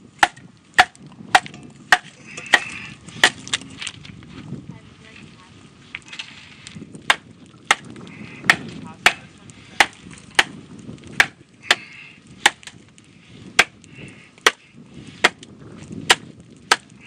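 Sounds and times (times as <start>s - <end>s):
wooden baton striking machete: 0.2s - 3.5s, 7.1s - 7.9s, 9.8s - 10.6s, 11.2s - 12.8s, 13.6s - 13.8s, 15.2s - 15.4s, 16.1s - 16.9s.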